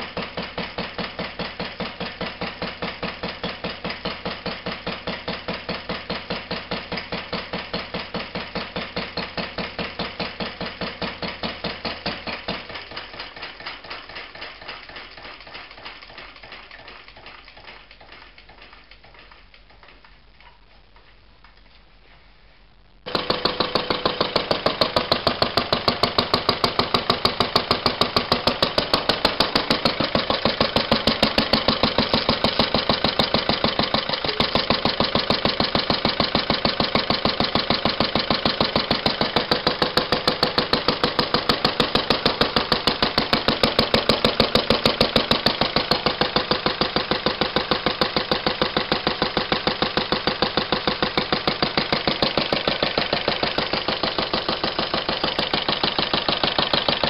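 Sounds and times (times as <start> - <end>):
stationary engine running: 23.1 - 57.0.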